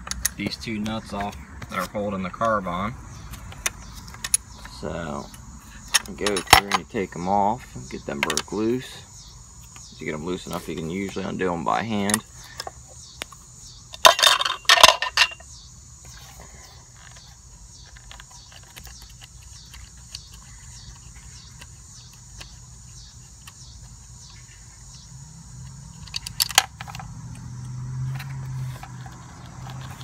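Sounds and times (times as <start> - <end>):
metal clinking of nuts and wrench: 5.9 - 7.0, 14.0 - 15.4, 26.0 - 27.1.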